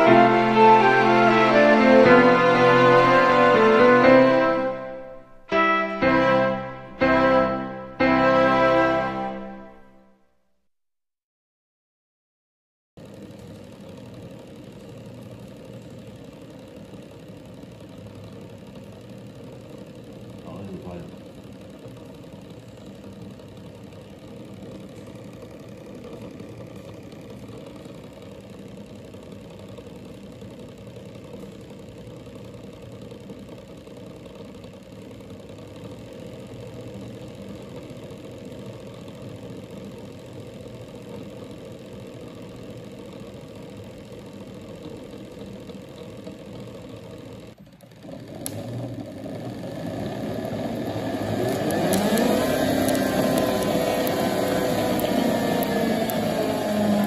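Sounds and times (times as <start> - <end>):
electric motor humming: 13.0 - 57.0.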